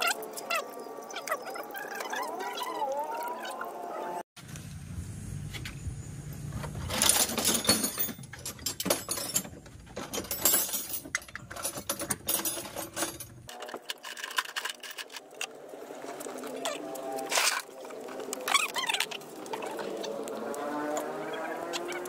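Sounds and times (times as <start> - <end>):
metal clinks and knocks: 6.5 - 15.3.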